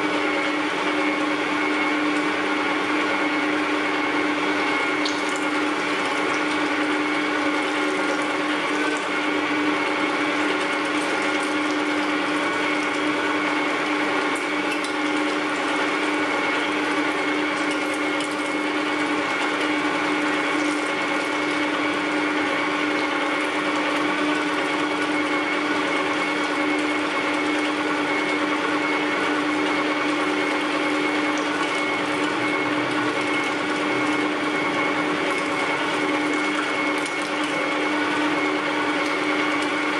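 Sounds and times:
electric meat grinder humming: 0.0 - 39.9.

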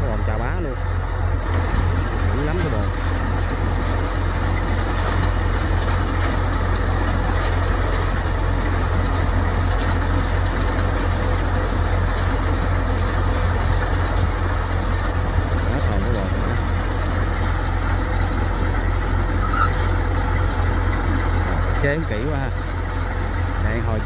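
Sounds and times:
combine harvester running: 0.0 - 24.0.

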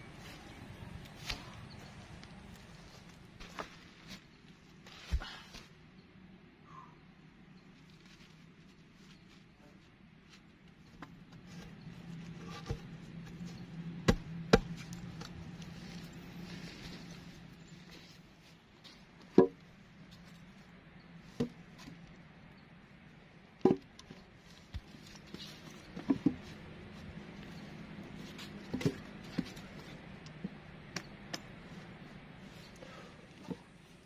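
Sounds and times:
wood being chopped: 14.0 - 14.9.

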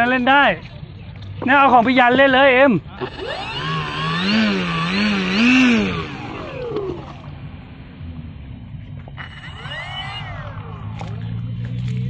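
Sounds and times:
model airboat motor and propeller whining: 2.9 - 7.6, 9.0 - 11.9.

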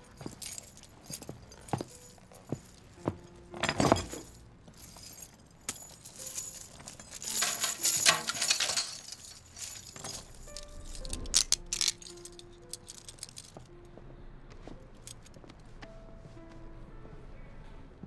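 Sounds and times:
handcuff chain jangling: 0.0 - 13.7.

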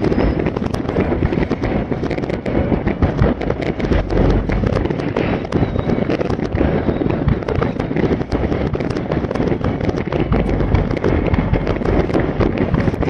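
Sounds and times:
fireworks crackling and banging: 0.0 - 13.0.

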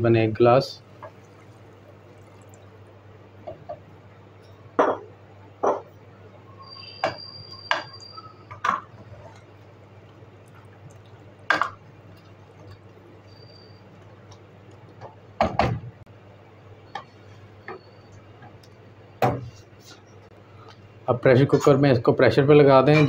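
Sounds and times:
faint steady hum: 0.0 - 23.0
wooden spoon stirring in pot: 8.6 - 14.8.

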